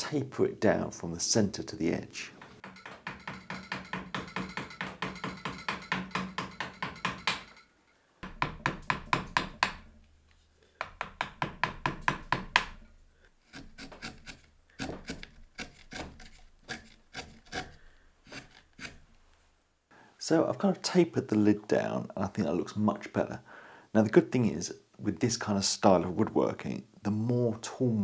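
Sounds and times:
mallet tapping gouge into wood: 2.4s - 7.6s, 8.2s - 9.9s, 10.8s - 12.8s.

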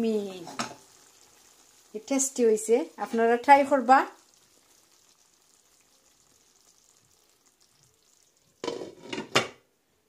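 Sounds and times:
faint sizzle in a wok: 0.0s - 10.0s
loud clatter of cookware: 8.6s - 9.6s.

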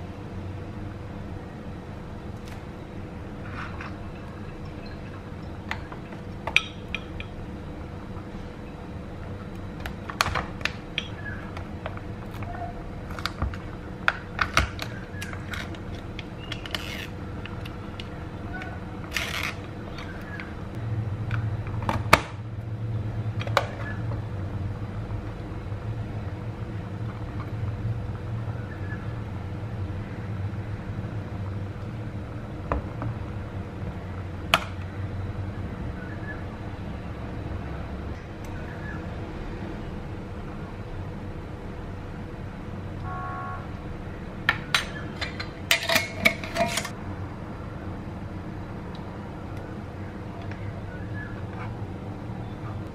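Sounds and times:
low steady rumble: 0.0s - 52.9s
metal spoon clicking and scraping tub: 44.8s - 46.9s.

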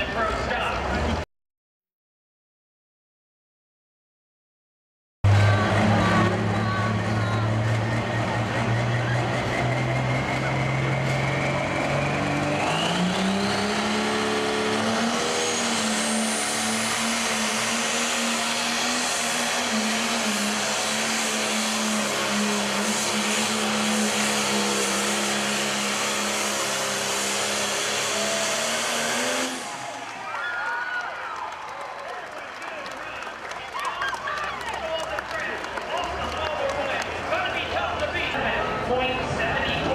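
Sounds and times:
diesel engine running under load: 5.2s - 30.3s.

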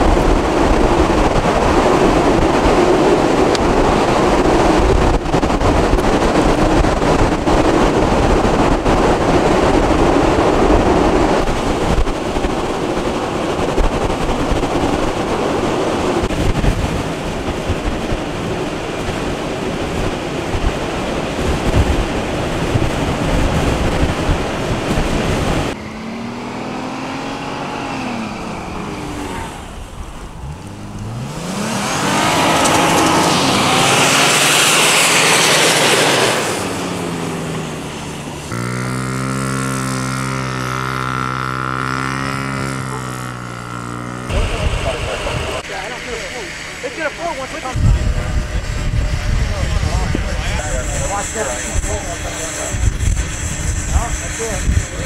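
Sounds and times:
wind buffeting microphone: 0.0s - 55.0s
car engine revving: 24.9s - 55.0s
motorcycle engine running: 35.5s - 55.0s.

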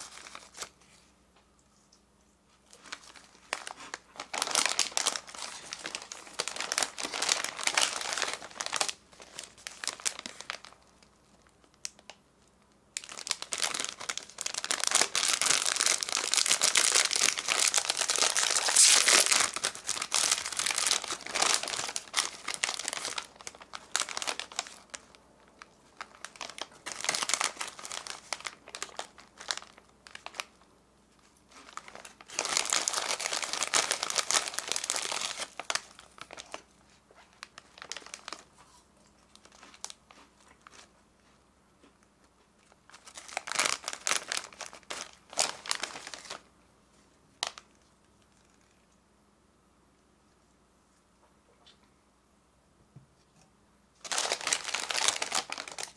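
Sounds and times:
plastic snack packets crinkling: 0.0s - 0.8s, 2.7s - 12.2s, 12.9s - 40.9s, 42.6s - 46.5s, 47.4s - 48.8s, 54.0s - 55.9s
foil snack bag pulled open: 13.1s - 24.8s.

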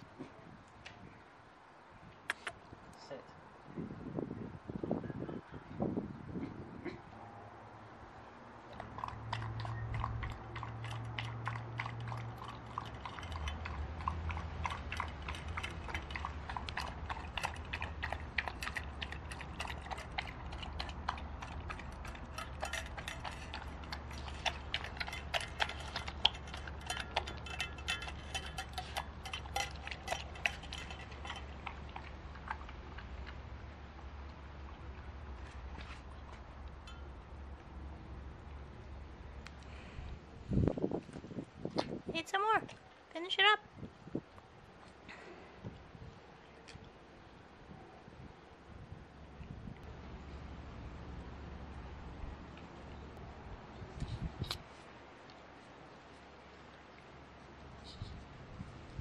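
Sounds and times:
dog chewing and licking: 8.6s - 36.9s
teeth clicking on metal bowl: 8.7s - 33.4s.

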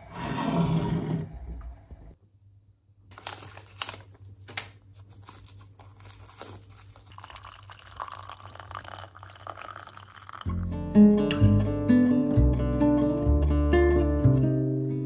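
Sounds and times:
paper wrapper crinkling and tearing: 3.1s - 10.3s
water pouring into mug: 7.0s - 10.6s.

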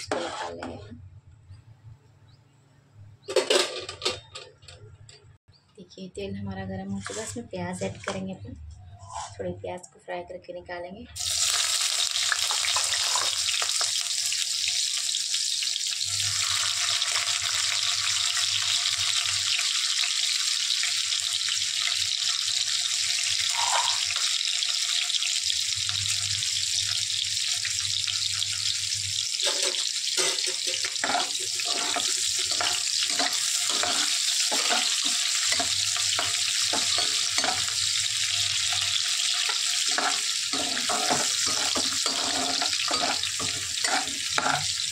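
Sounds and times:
onions sizzling in hot oil: 0.0s - 0.6s, 11.2s - 44.9s
ladle scraping pan: 0.0s - 0.9s, 12.5s - 13.4s, 29.4s - 37.8s, 38.8s - 44.8s.

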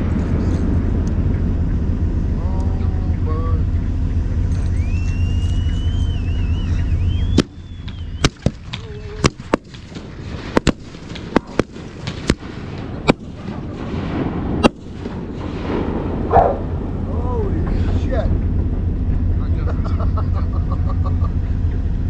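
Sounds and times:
low rumble: 0.0s - 22.0s
wavering whistle: 4.6s - 9.1s
fireworks bangs: 4.9s - 19.0s.

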